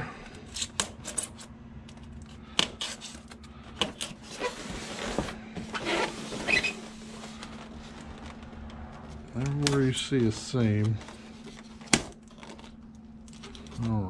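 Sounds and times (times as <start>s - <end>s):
faint steady hum: 0.0s - 14.0s
scraping and rustling: 0.6s - 14.0s.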